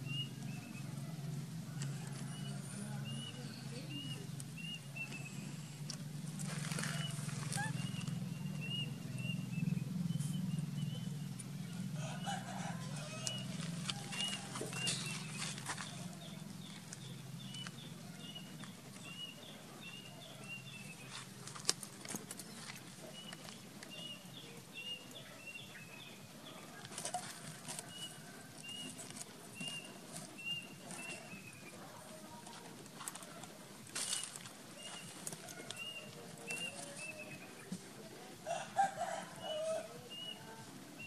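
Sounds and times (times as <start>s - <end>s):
baby monkey squeaking: 7.0s - 8.2s
dry stems rustling and snapping: 21.1s - 23.9s.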